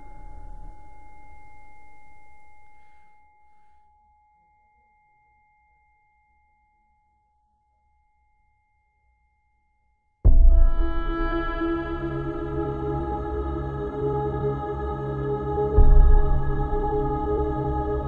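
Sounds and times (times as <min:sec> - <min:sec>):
sustained ringing tone: 0:00.0 - 0:07.1.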